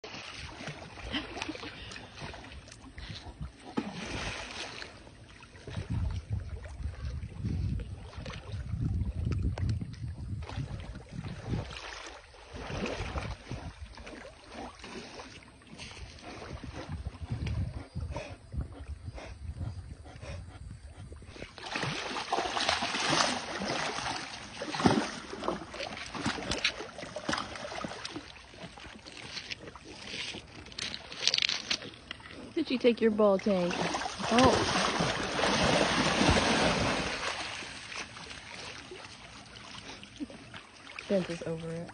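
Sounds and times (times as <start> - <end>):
water splashing and sloshing: 0.0 - 41.9
wind rumbling on microphone: 2.1 - 4.4, 5.5 - 14.5, 15.7 - 22.0
loud splash: 3.8 - 4.9, 21.6 - 26.6, 33.6 - 39.0.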